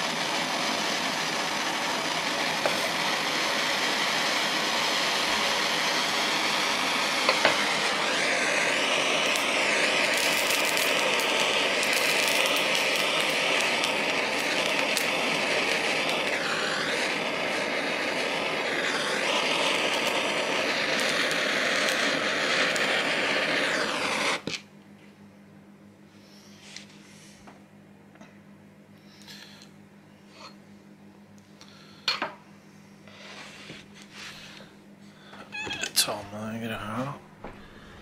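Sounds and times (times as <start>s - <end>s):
gas torch flame hissing: 0.0s - 24.7s, 29.0s - 29.7s, 33.0s - 34.8s, 35.4s - 38.0s.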